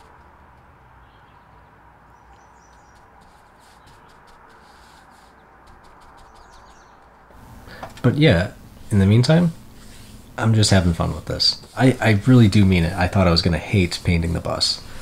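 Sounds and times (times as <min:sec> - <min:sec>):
faint bird chirps: 0:01.0 - 0:04.2, 0:06.2 - 0:07.0
low background hiss: 0:07.4 - 0:15.0.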